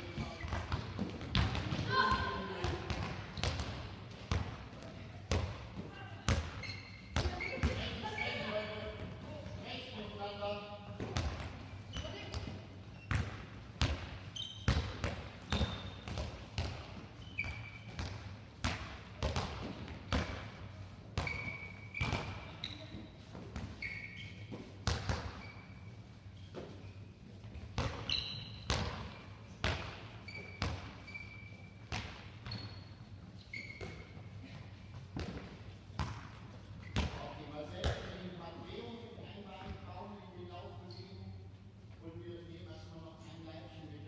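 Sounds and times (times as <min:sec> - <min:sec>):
shoes squeaking on floor: 0:00.0 - 0:01.0, 0:06.4 - 0:09.3, 0:11.8 - 0:12.3, 0:14.3 - 0:16.2, 0:17.1 - 0:18.1, 0:21.2 - 0:27.2, 0:28.0 - 0:29.2, 0:30.2 - 0:31.8, 0:32.4 - 0:34.3, 0:40.8 - 0:41.5
balls bouncing on hall floor: 0:00.0 - 0:10.2, 0:10.9 - 0:25.8, 0:27.4 - 0:32.9, 0:33.6 - 0:38.2.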